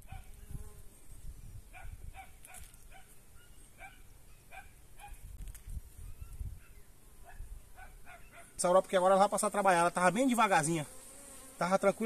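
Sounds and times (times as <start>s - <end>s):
dog barking: 0.0s - 0.3s, 1.7s - 5.2s, 6.6s - 8.6s.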